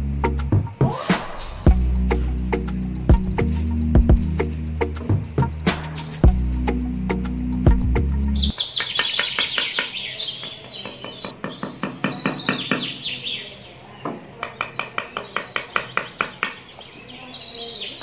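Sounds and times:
background music: 0.0 - 8.6
small birds chirping: 1.7 - 18.0.

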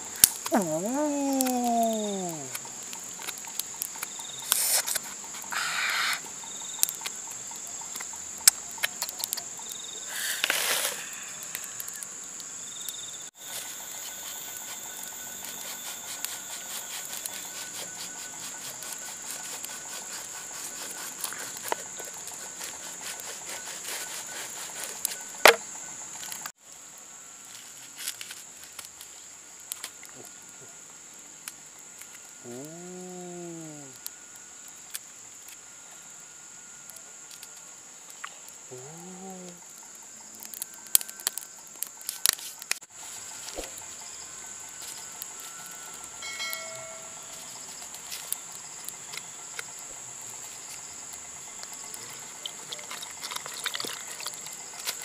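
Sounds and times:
high-pitched insect drone: 0.0 - 55.0
bamboo blade scraping fruit rind: 4.0 - 6.2, 10.2 - 11.2, 13.4 - 25.6.

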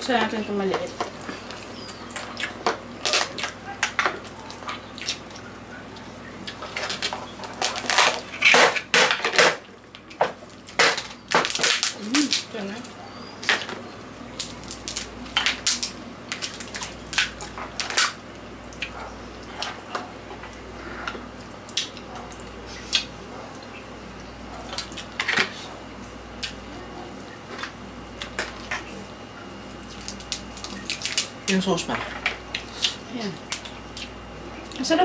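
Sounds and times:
wet eating and chewing: 0.8 - 31.5
crab shells cracking: 1.0 - 5.4, 6.5 - 13.8, 14.4 - 19.8, 21.6 - 23.2, 29.8 - 31.6.

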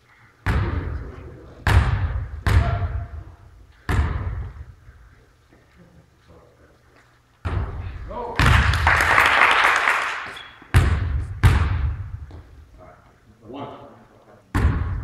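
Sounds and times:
basketball bouncing in a gym: 0.4 - 4.7, 7.4 - 8.8, 10.4 - 12.6, 14.5 - 15.0.

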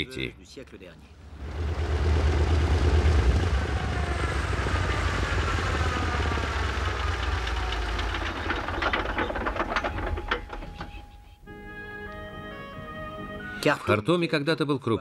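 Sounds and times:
seaplane engines rumbling: 1.1 - 11.2.

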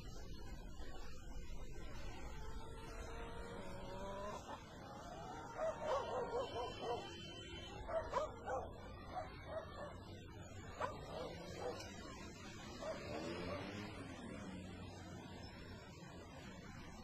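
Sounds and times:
animal whining and yelping: 2.4 - 7.2.

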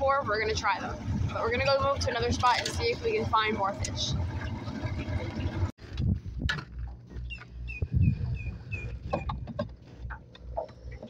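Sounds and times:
gusty low rumble: 0.0 - 11.0
bird clucking calls: 7.2 - 9.7.

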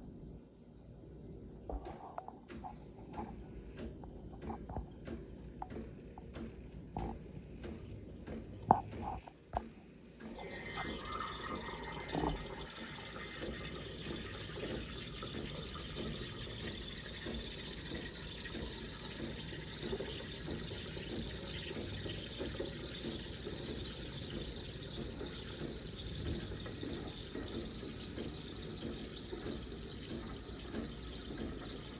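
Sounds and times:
steam wand frothing milk: 7.0 - 31.9.

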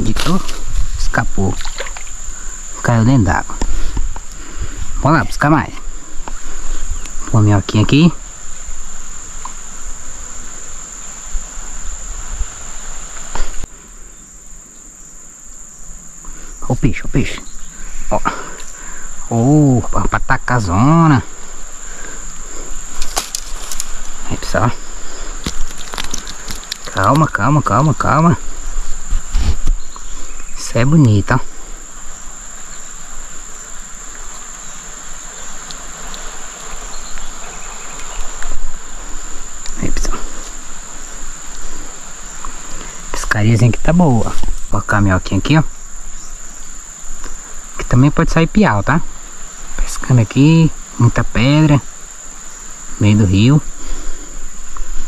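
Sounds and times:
background hiss: 0.0 - 55.0
insects trilling: 0.0 - 55.0
flowing river water: 1.5 - 2.6
faint ticks: 9.4 - 9.6, 35.6 - 36.3, 41.4 - 41.7, 42.4 - 43.0.

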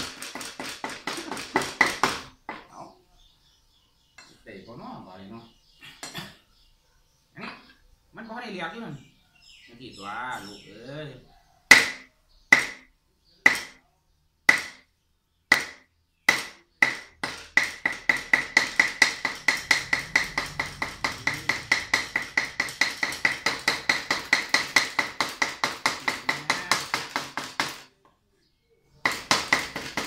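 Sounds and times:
cleaver chopping on wooden block: 0.1 - 2.6, 11.7 - 12.9, 13.5 - 13.8, 14.5 - 14.8, 15.5 - 27.8, 29.0 - 30.0.

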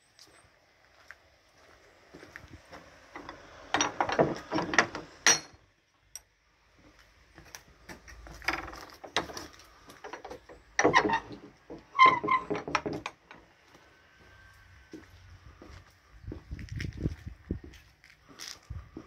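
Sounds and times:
wooden gate creaking and clattering: 2.6 - 5.6, 7.4 - 13.6.

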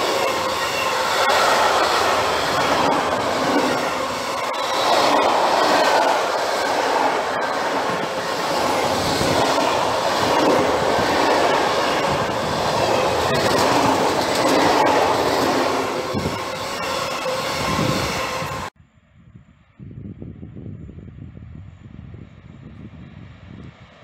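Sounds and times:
train wheels rumbling on rails: 0.0 - 18.7.

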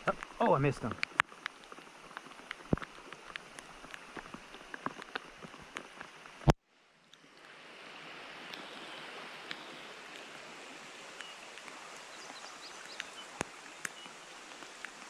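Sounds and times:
raindrop ticks: 0.0 - 7.5, 11.1 - 15.0
creek running water: 0.0 - 15.0
rain falling on creek: 0.0 - 15.0.

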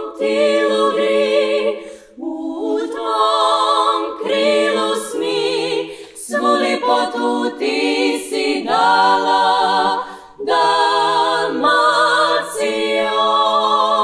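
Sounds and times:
women singing in close harmony: 0.0 - 14.0.

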